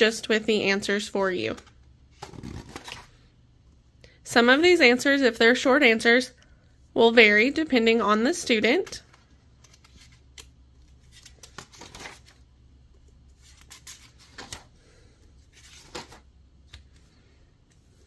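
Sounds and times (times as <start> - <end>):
pages turning: 1.6 - 3.2, 9.0 - 12.4, 13.3 - 14.7, 15.5 - 17.0.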